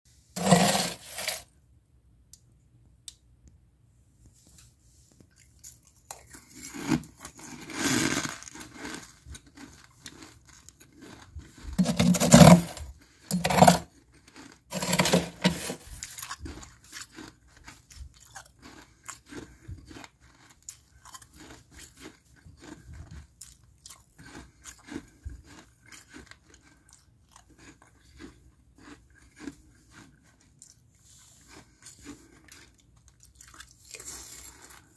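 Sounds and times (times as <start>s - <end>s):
spoon scraping frost: 0.2s - 1.6s, 4.4s - 17.3s
ice crystals crunching: 0.4s - 1.4s, 6.3s - 16.4s.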